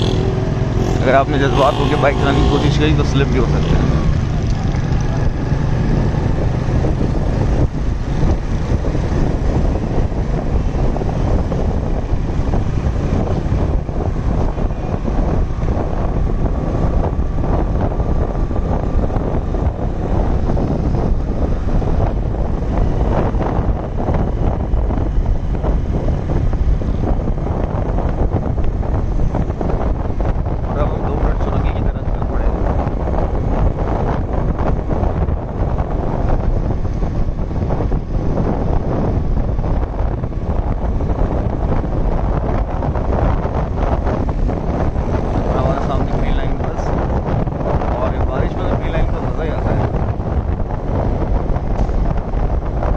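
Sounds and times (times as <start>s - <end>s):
motorcycle engine: 0.0s - 31.3s
road noise: 0.0s - 52.9s
wind rush on microphone: 0.0s - 52.9s.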